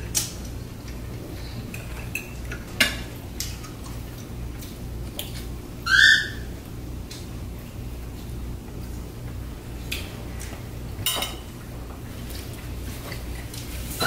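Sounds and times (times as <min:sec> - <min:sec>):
baby squealing: 0:05.9 - 0:06.4
cutlery clicking on plates: 0:11.0 - 0:11.5.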